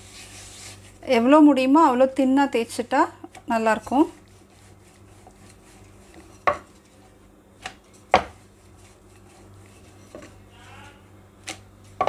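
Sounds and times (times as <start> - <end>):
rolling pin rolling dough: 0.0 - 1.4, 3.5 - 10.5.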